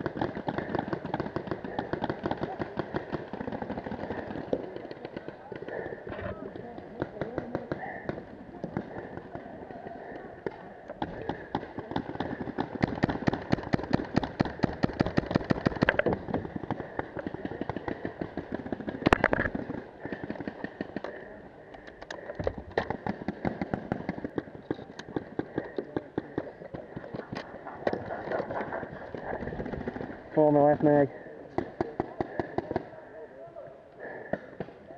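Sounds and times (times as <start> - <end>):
paintball markers firing: 0.0 - 9.5, 10.1 - 29.9.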